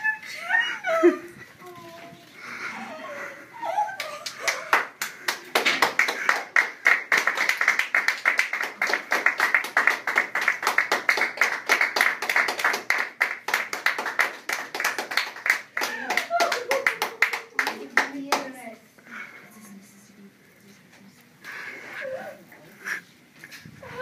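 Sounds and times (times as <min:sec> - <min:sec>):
people clapping: 0:03.9 - 0:18.7.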